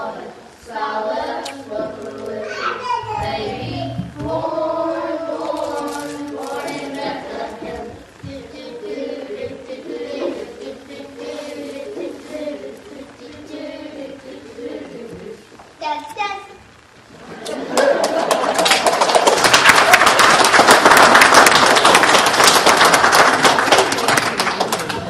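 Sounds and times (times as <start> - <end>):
children's choir singing: 0.0 - 15.6.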